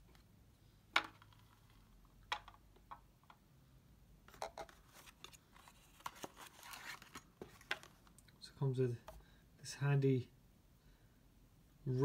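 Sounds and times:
card sliding rustle: 4.3s - 8.0s.

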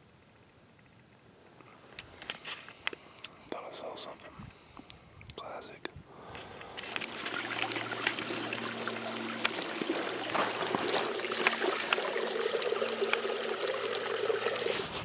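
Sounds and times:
creek trickling: 6.1s - 15.0s
water gurgling into plastic bottle: 6.8s - 15.0s.

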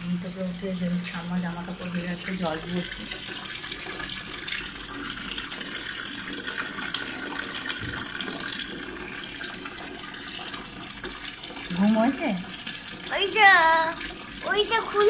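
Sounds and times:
water pouring into plastic tub: 0.0s - 15.0s.

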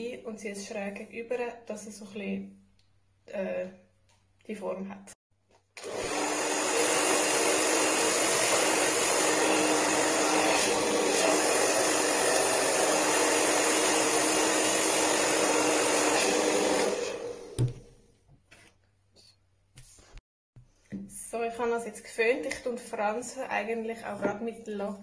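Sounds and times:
hair dryer running: 5.8s - 17.8s.

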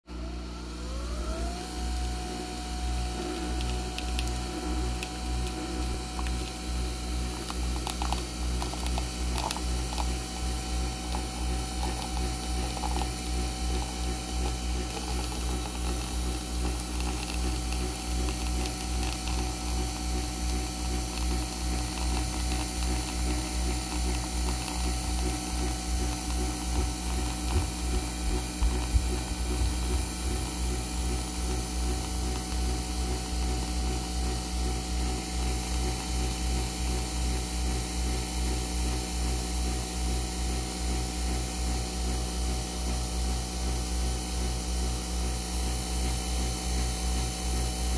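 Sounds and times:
coffee machine buzzing: 0.1s - 47.9s
coffee machine whine: 0.1s - 47.9s
coffee streaming into mug: 1.9s - 39.8s.

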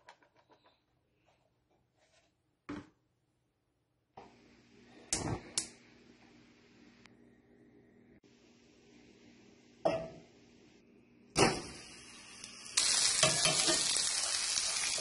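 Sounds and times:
steak sizzling in a skillet: 11.6s - 15.0s.

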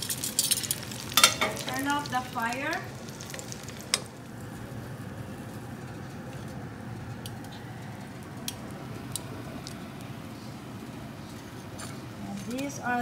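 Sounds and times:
frying oil popping: 0.0s - 10.2s
steady low hum: 0.8s - 13.0s.

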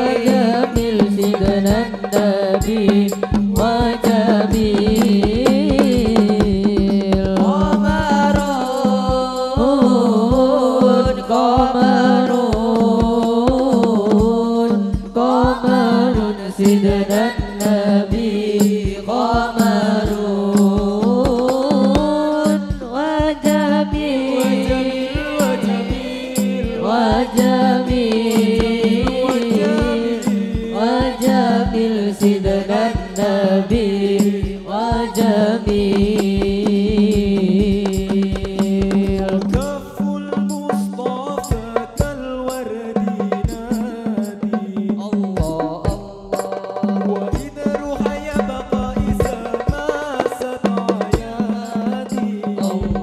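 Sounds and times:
steady drum beat: 0.0s - 53.0s
person singing wavering melody: 19.0s - 33.7s.

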